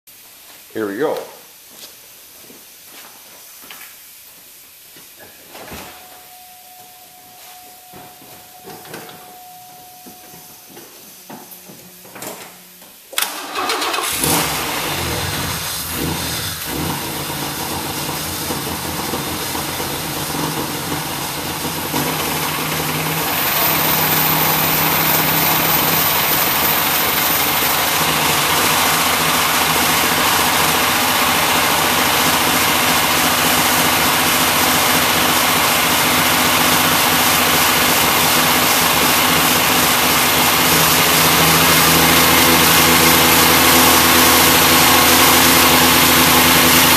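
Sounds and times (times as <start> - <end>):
car engine cranking and revving: 13.2 - 46.9.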